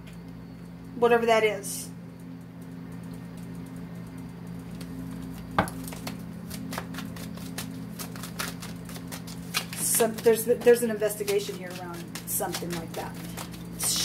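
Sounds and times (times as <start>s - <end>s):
cards being shuffled: 4.8s - 14.0s.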